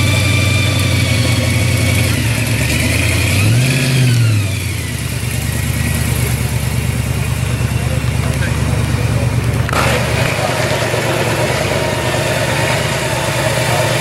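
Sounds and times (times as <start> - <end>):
car engine revving: 0.0 - 14.0.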